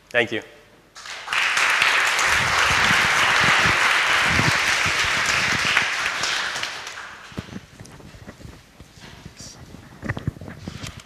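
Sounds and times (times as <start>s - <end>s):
audience applauding: 1.0s - 7.7s
lapel microphone thumps and rustles: 2.3s - 5.9s, 7.2s - 11.0s.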